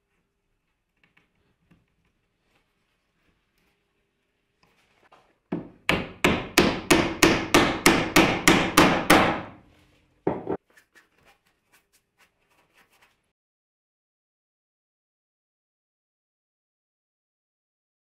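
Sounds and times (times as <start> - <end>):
mallet striking wooden dowel: 5.5 - 9.6.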